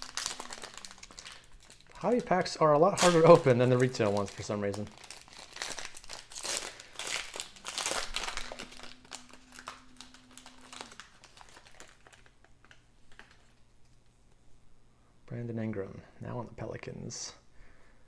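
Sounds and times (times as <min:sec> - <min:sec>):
foil wrapper crinkling: 0:00.0 - 0:13.6.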